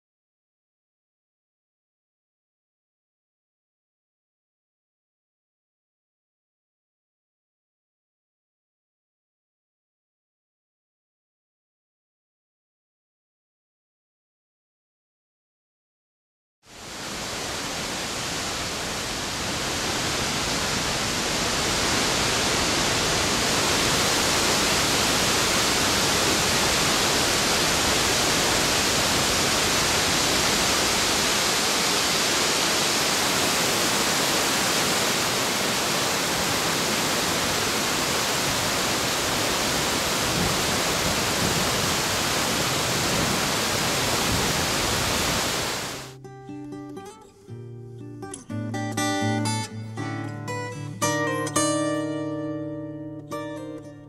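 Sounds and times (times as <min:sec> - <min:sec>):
waterfall rushing: 0:16.7 - 0:46.2.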